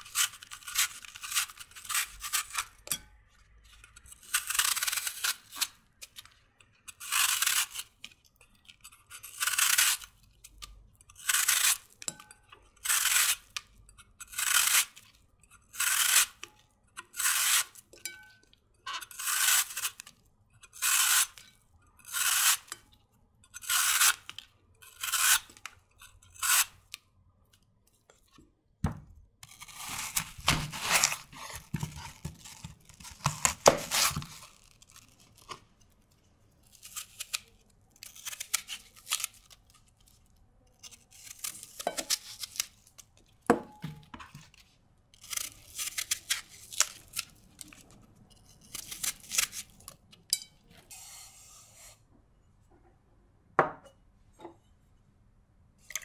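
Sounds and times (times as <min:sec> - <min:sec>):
knife crunching through apple: 0:00.0 - 0:02.9, 0:03.7 - 0:17.9, 0:18.9 - 0:22.8, 0:23.6 - 0:27.0, 0:29.4 - 0:35.7, 0:36.6 - 0:43.4, 0:45.2 - 0:51.5
peeler shaving apple skin: 0:00.0 - 0:02.9, 0:03.7 - 0:12.2, 0:12.8 - 0:18.0, 0:18.9 - 0:22.8, 0:23.6 - 0:27.0, 0:29.4 - 0:35.6, 0:36.6 - 0:40.2, 0:40.8 - 0:43.1, 0:45.2 - 0:50.0
faint knife scrapes: 0:29.4 - 0:34.4, 0:50.4 - 0:52.0.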